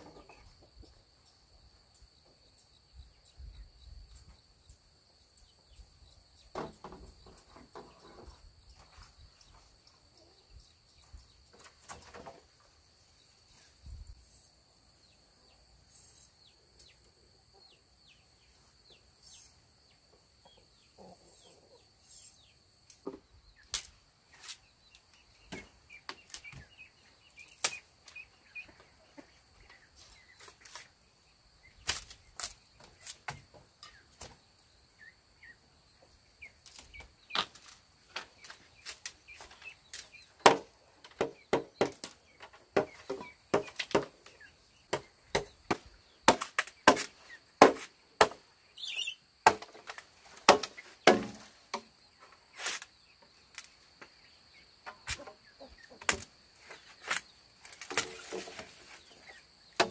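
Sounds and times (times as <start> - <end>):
bird chirps: 23.3 - 31.0, 48.6 - 49.4.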